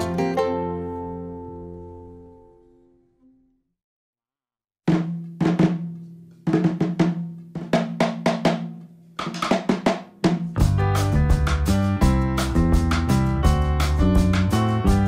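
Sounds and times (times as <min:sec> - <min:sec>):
background music: 0:00.0 - 0:02.8, 0:10.6 - 0:15.0.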